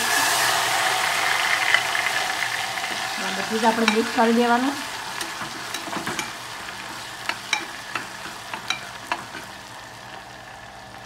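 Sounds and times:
tomato sizzling in hot oil: 0.0s - 11.0s
ladle clinking against pot: 5.2s - 6.4s, 7.2s - 9.5s.

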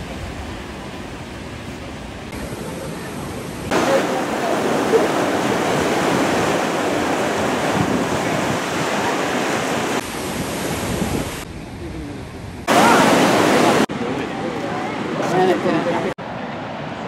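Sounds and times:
surf breaking over rocks: 2.3s - 11.5s, 12.6s - 16.2s
wind on microphone: 4.5s - 13.8s.

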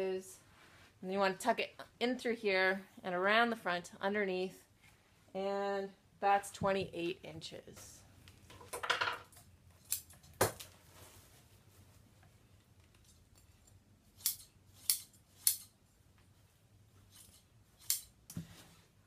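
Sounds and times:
soft rustle: 0.4s - 1.1s, 10.7s - 13.8s
scissors snipping: 14.2s - 15.7s, 17.2s - 18.4s.

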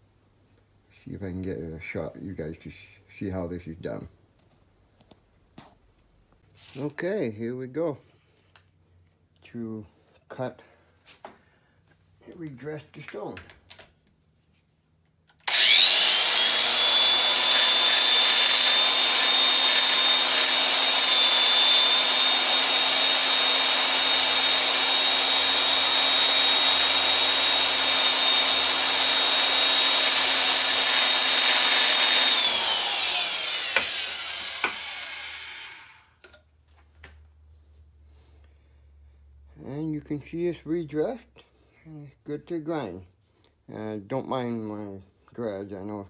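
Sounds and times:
electric grinder motor whine: 15.4s - 36.3s
high grinding hiss: 15.5s - 36.1s.

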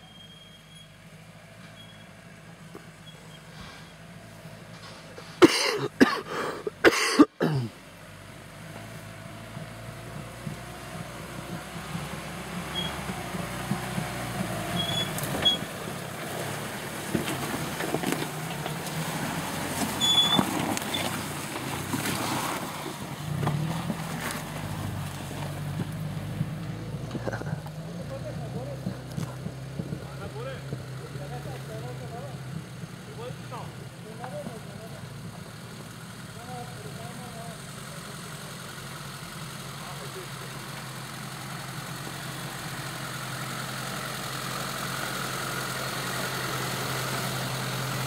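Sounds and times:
suv engine crawling: 0.0s - 48.0s.

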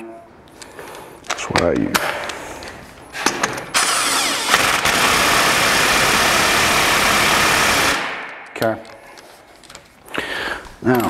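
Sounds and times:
impact wrench hammering: 4.5s - 8.6s.

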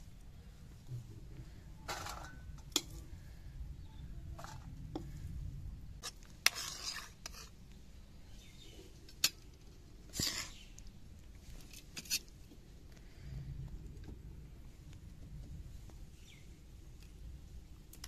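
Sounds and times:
ladle scraping pan: 6.0s - 7.6s.

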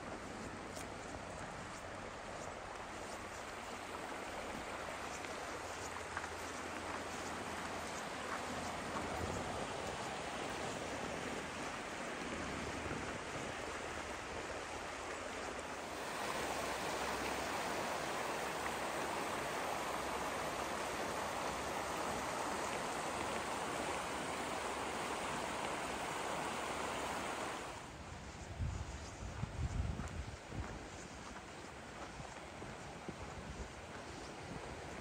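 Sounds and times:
stream rushing over rocks: 2.0s - 28.0s
footsteps crunching in snow: 28.1s - 34.8s.

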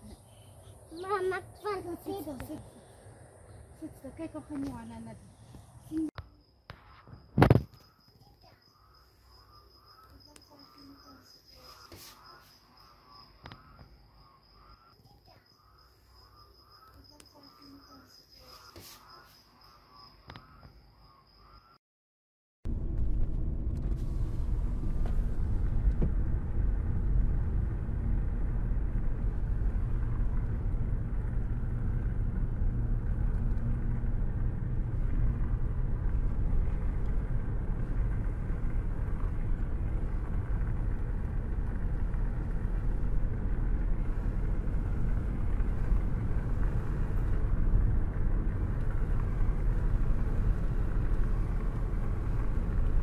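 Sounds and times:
car engine and tyre rumble: 11.0s - 14.9s, 22.7s - 53.0s.

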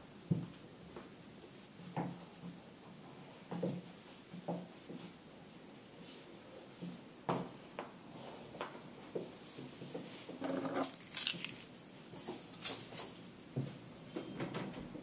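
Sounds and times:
keys jangling: 10.6s - 13.2s.

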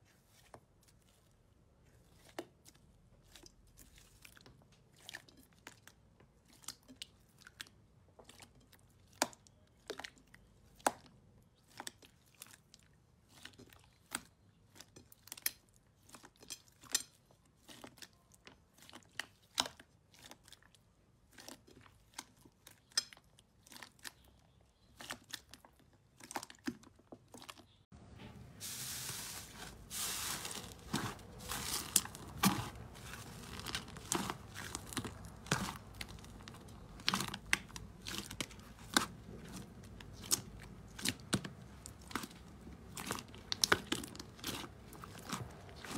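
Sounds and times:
slime crackling and popping: 30.0s - 45.9s.

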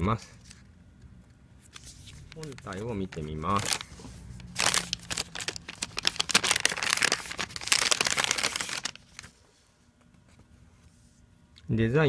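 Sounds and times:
plastic bag crinkling: 2.2s - 9.3s.

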